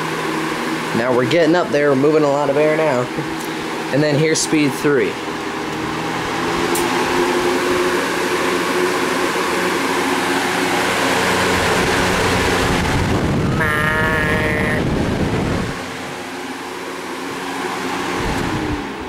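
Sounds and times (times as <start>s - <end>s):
box fan rushing air: 0.0s - 19.0s
brief wavering whine: 11.4s - 16.7s
wind buffeting microphone: 11.8s - 13.6s, 14.3s - 15.8s.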